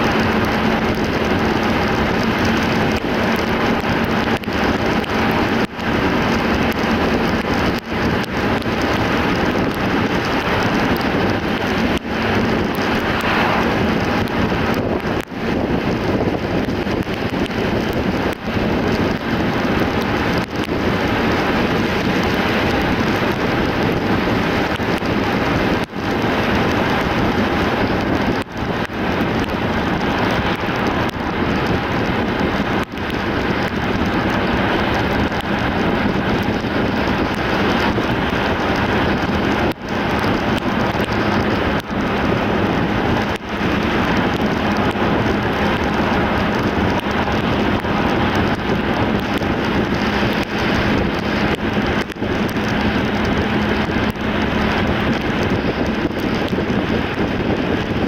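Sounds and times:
tyre hiss on wet road: 12.2s - 15.0s.

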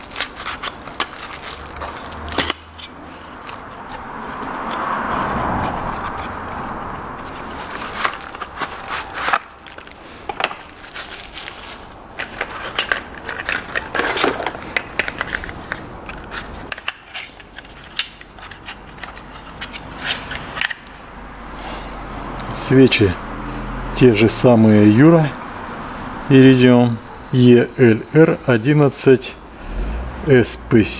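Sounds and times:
packaging crinkling: 0.0s - 4.0s, 5.8s - 20.9s.

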